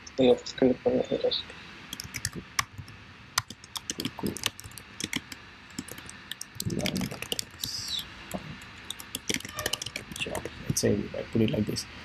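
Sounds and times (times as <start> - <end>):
computer keyboard typing: 1.9 - 10.7.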